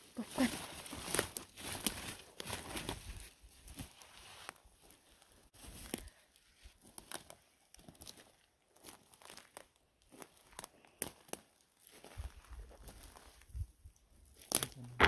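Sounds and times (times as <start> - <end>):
dry leaf litter crunching: 0.0 - 3.2.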